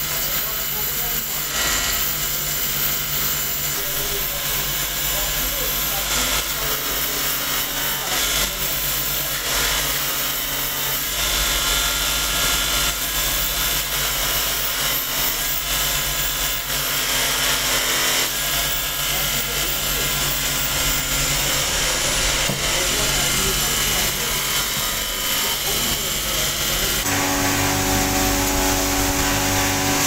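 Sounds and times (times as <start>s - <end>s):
metalworking machinery whirring: 0.0s - 30.0s.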